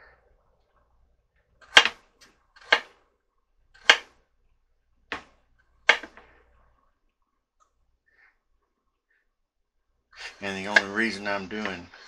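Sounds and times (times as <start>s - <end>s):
knife chopping carrots: 1.7s - 2.0s, 2.6s - 2.9s, 3.8s - 4.1s, 5.9s - 6.2s, 10.6s - 12.0s.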